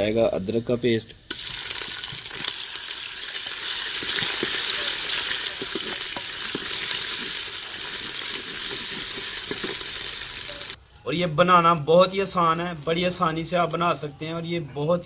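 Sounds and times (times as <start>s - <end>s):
paste sizzling in hot oil: 1.0s - 10.8s
wooden spoon scraping clay pot: 3.6s - 10.8s.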